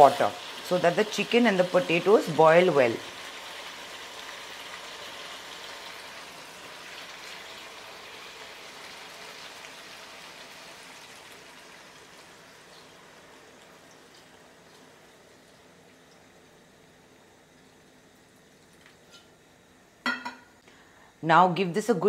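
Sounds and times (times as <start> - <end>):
water pouring into hot curry: 3.0 - 19.2.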